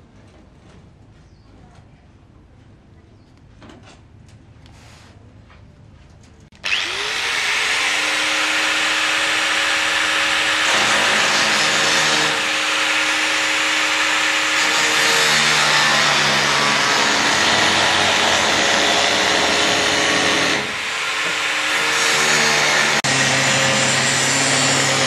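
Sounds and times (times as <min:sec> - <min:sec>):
angle grinder cutting sheet metal: 0:06.6 - 0:25.0.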